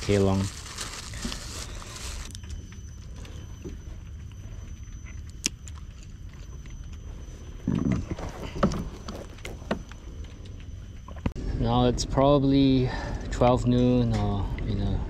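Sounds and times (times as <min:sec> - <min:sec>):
plastic bag crinkling: 0:00.0 - 0:02.4, 0:08.1 - 0:09.9.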